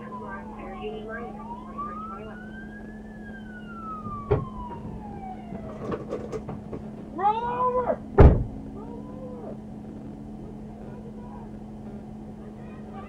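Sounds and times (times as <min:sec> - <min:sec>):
police siren wail: 0:00.0 - 0:09.6
low electrical hum: 0:00.0 - 0:13.0
wavering voice cry: 0:07.1 - 0:08.1, 0:08.7 - 0:09.6.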